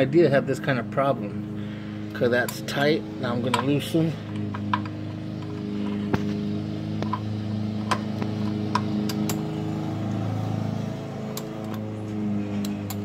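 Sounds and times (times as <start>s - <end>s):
steady low hum: 0.0s - 13.0s
socket wrench clicking: 7.0s - 9.4s, 11.3s - 11.9s.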